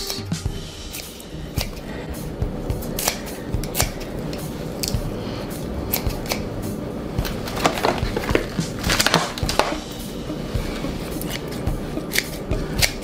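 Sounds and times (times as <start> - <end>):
scissors snipping lettuce: 0.9 - 1.9, 2.8 - 5.0, 5.9 - 6.5, 11.2 - 13.0.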